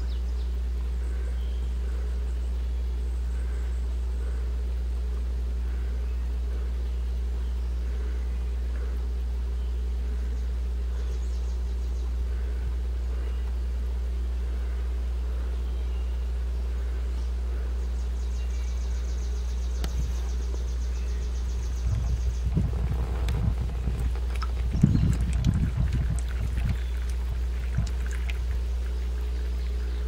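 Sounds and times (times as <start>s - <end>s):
low electrical hum: 0.0s - 30.0s.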